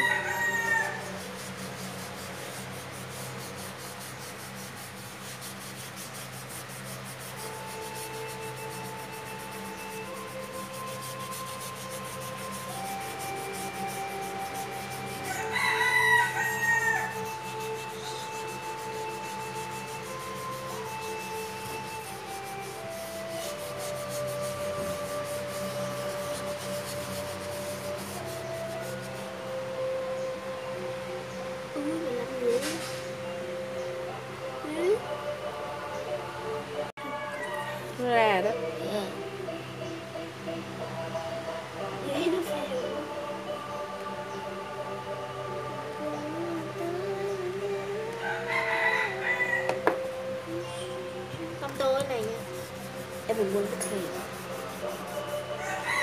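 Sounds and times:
hand rubbing pastel on paper: 0.0 - 29.3, 51.8 - 56.0
soft background music: 0.0 - 56.0.

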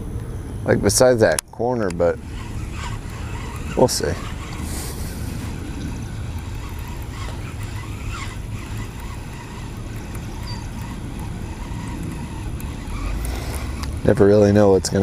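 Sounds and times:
wind buffeting microphone: 0.0 - 15.0
faint high chirps: 10.2 - 10.8.

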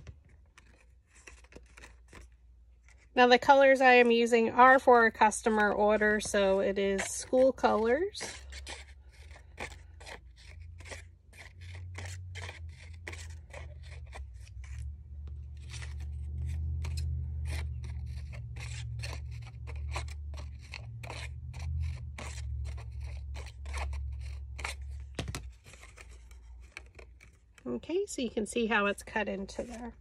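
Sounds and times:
low steady hum: 0.2 - 30.0
scissors snipping paper: 5.2 - 27.7.

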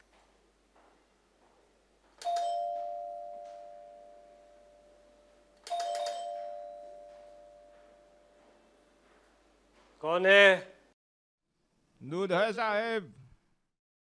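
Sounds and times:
doorbell chime: 2.2 - 8.5.

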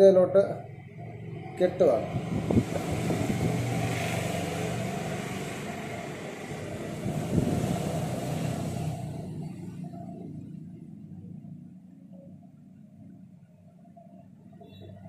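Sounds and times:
motor vehicle passing: 0.6 - 12.2.

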